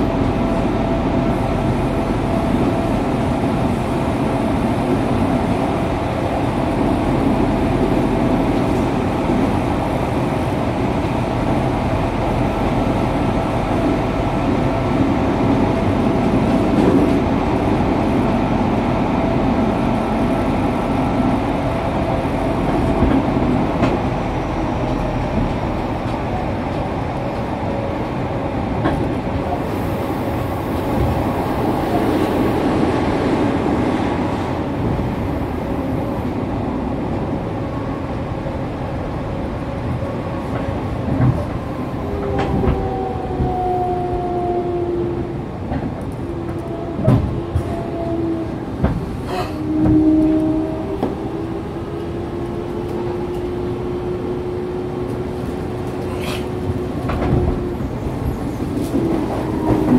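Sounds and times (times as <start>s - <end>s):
train rumbling in tunnel: 0.0s - 59.9s.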